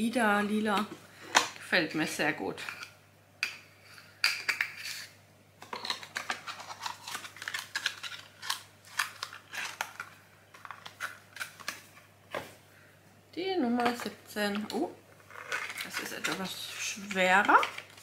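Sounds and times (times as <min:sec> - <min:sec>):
cardboard packaging rustling: 0:05.7 - 0:12.6.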